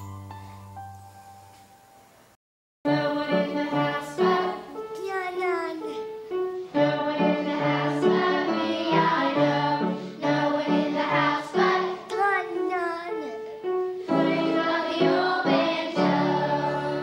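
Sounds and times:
children singing: 2.9 - 4.9, 6.8 - 12.7, 14.1 - 17.0.

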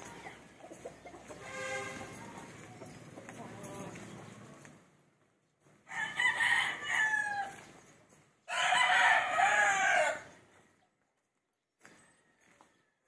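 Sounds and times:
rooster crowing: 5.9 - 7.6, 8.5 - 10.3.

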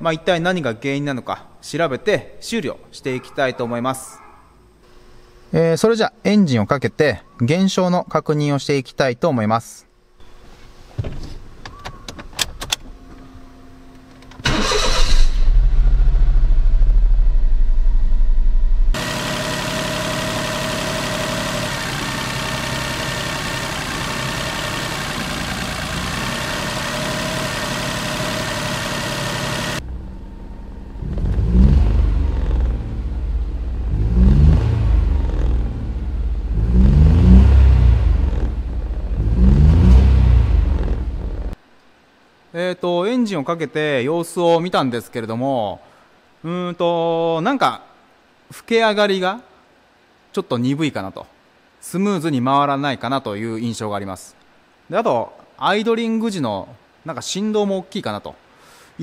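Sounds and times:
car engine starting: 14.2 - 41.6
engine revving: 14.5 - 41.6
engine idling unsteadily: 19.0 - 31.0.

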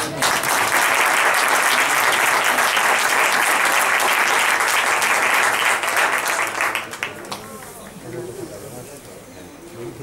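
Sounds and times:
spectators applauding: 0.0 - 8.0.

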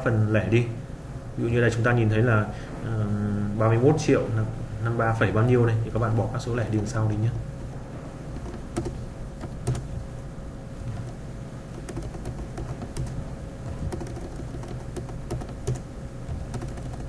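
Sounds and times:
faint steady hum: 0.0 - 17.0
keyboard keys clicking: 8.4 - 9.9, 10.9 - 17.0.

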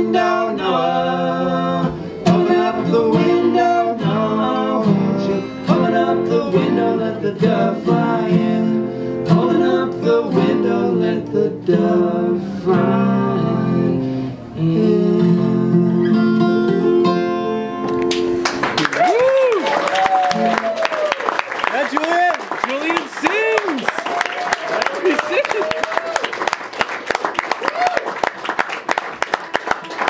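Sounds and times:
men singing together: 0.0 - 14.0
acoustic guitars strumming: 0.0 - 18.9.

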